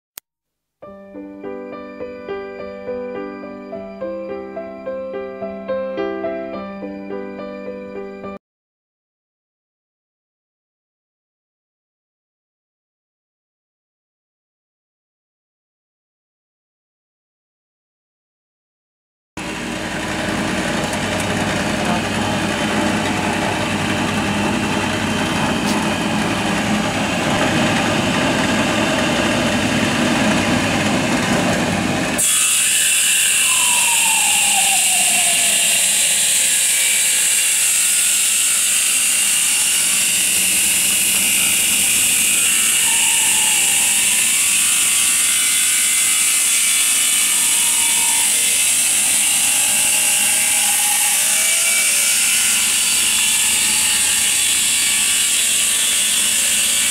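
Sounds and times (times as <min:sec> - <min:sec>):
wood cutting machine running: 0:19.4 - 0:56.9.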